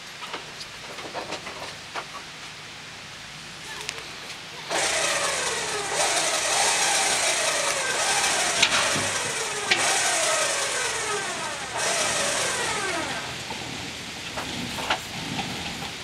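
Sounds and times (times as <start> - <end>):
engine revving under load: 4.6 - 16.0.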